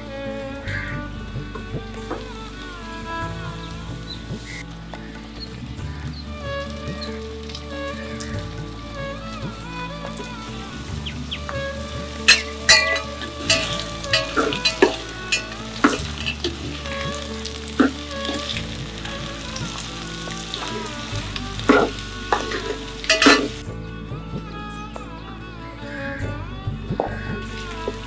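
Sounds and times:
vegetables sizzling in pot: 0:09.4 - 0:23.6.

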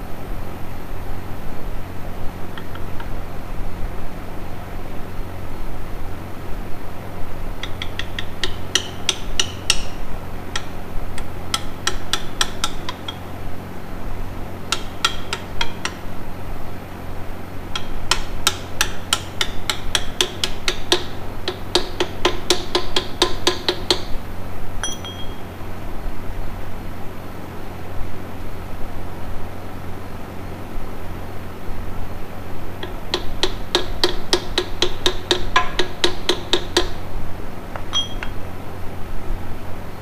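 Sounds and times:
hammer tapping on steel: 0:07.6 - 0:13.3, 0:14.7 - 0:16.0, 0:17.8 - 0:24.1, 0:24.8 - 0:25.5, 0:32.8 - 0:37.0, 0:37.8 - 0:38.4.

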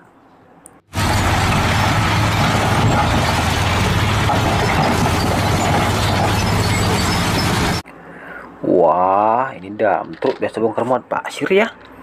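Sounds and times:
dump truck diesel engine droning: 0:00.9 - 0:07.8.

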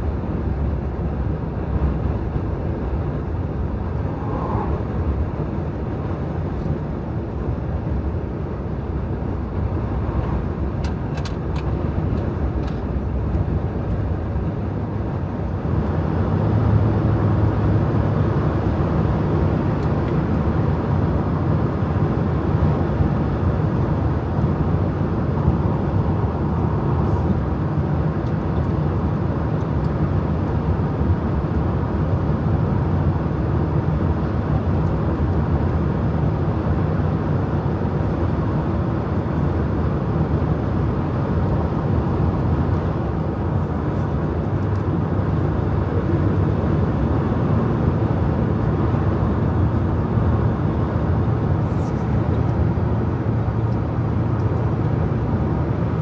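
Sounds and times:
car tyre and road noise: 0:00.0 - 0:56.0
low drone: 0:02.9 - 0:06.7.

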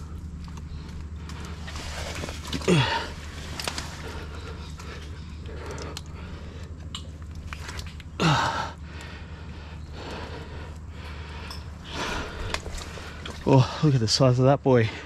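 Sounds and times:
steady low rumble: 0:00.0 - 0:15.0
faint clicks: 0:03.4 - 0:08.2.

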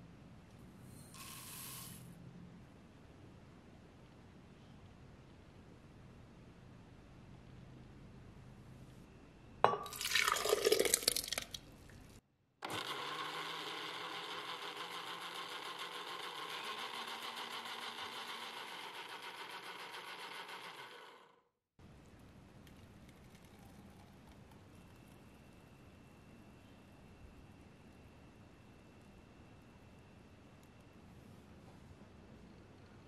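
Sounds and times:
blender running: 0:12.7 - 0:21.3.

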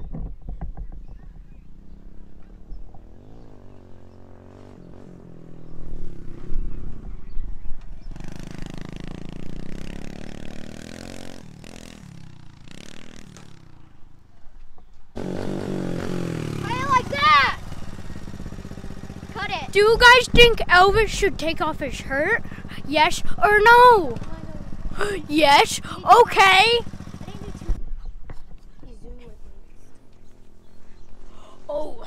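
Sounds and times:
dirt bike engine revving: 0:01.7 - 0:07.3, 0:08.0 - 0:14.1, 0:15.2 - 0:27.8.

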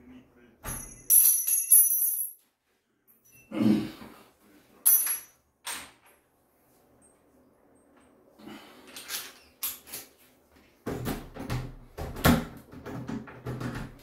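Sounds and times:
metal parts clinking: 0:00.7 - 0:02.4, 0:04.9 - 0:05.4.

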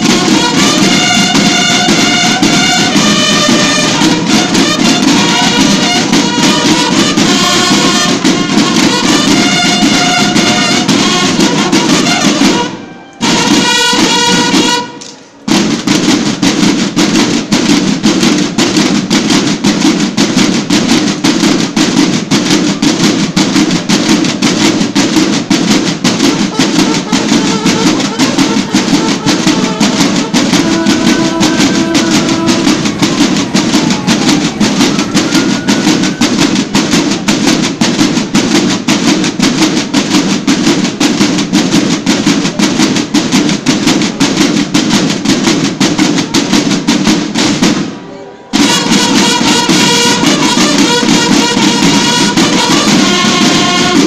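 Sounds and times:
marching band drums: 0:00.0 - 0:54.0.

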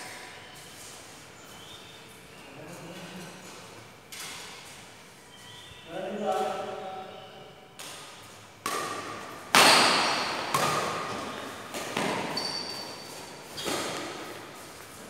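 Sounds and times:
badminton rackets hitting shuttlecock: 0:07.8 - 0:14.5.

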